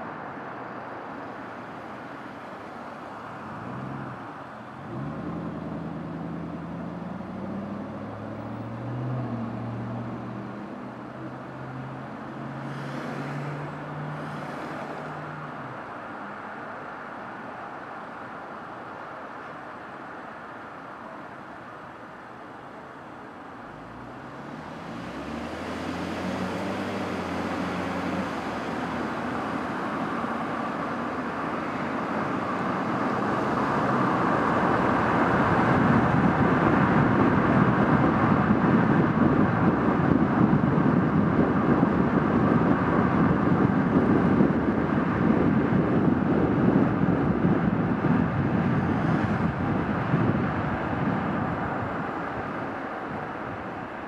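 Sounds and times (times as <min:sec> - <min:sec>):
tyre and road noise: 0:00.0 - 0:54.0
car engine accelerating: 0:03.4 - 0:15.8, 0:23.7 - 0:45.5.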